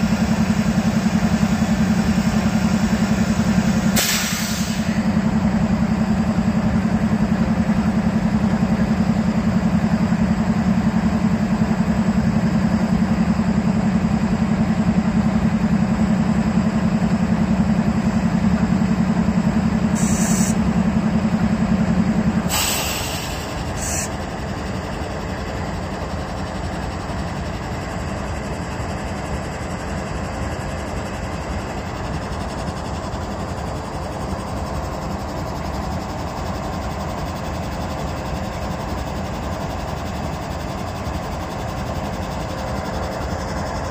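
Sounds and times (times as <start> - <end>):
diesel locomotives idling: 0.0 - 43.9
air hisses: 4.0 - 5.0, 20.0 - 20.6, 22.5 - 24.1.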